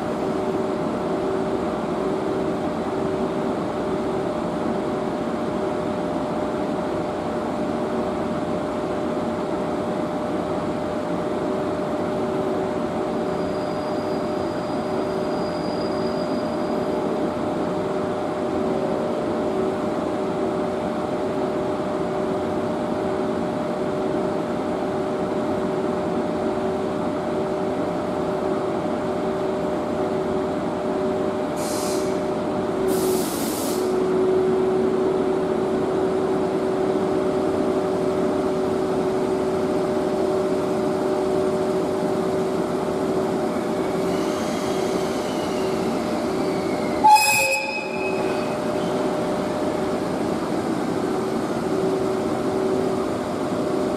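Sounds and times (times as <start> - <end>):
compressed air hisses: 31.6 - 32.2, 32.9 - 33.9
electric locomotive humming: 33.9 - 53.9.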